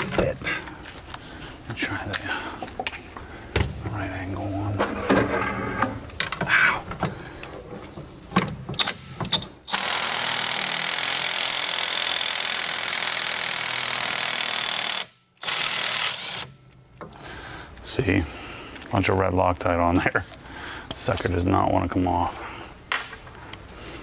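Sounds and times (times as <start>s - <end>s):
impact wrench running: 8.8s - 16.5s.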